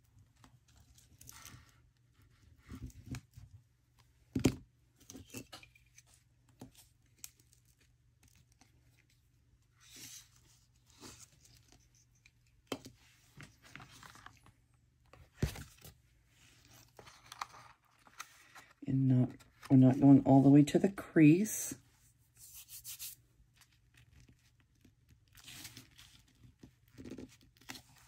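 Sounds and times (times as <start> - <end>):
paper rustling and crinkling: 5.0 - 19.7, 22.4 - 28.0.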